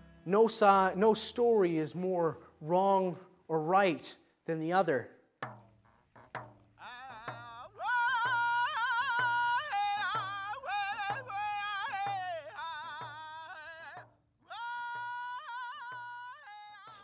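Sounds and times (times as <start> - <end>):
frame drum beat: 5.4 - 14.1
man singing in high wavering voice: 6.8 - 17.0.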